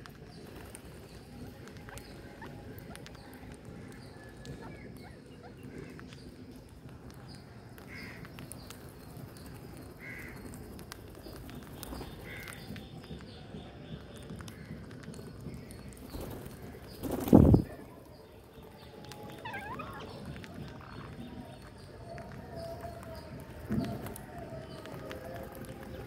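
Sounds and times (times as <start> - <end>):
parakeets squawking: 19.3 - 21.2.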